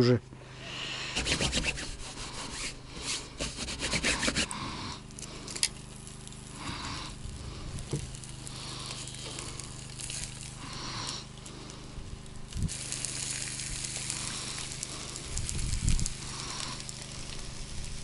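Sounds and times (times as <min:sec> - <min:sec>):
fish sizzling on a grill: 0:00.6 - 0:18.0
low handling rumble: 0:05.0 - 0:12.9.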